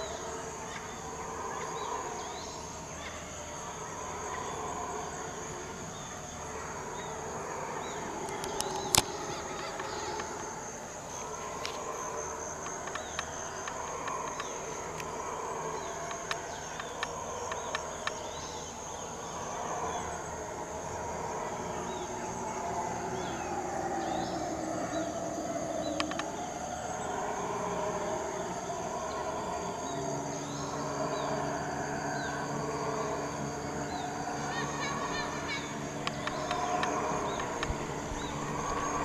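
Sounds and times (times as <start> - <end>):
birds chirping: 0.0 - 39.0
howler monkeys howling: 0.0 - 39.0
insect drone: 0.0 - 39.0
low steady hum: 0.0 - 39.0.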